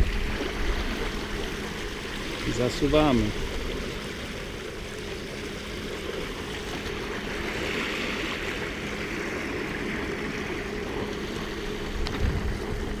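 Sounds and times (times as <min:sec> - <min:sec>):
water rushing along hulls: 0:00.0 - 0:13.0
wind buffeting microphone: 0:11.8 - 0:13.0.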